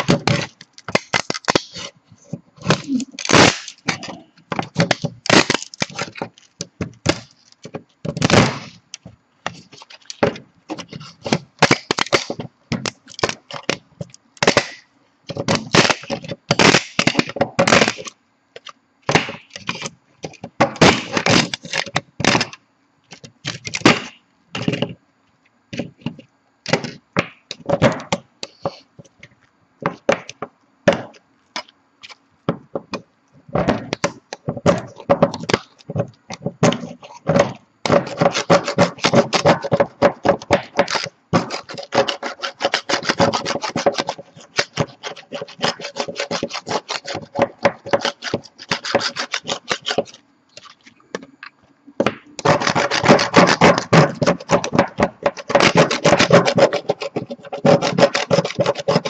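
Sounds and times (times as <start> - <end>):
metal scraper scraping plastic: 0.0 - 8.8, 9.5 - 13.8, 14.4 - 18.2, 19.1 - 25.0, 33.6 - 50.9, 52.4 - 59.0.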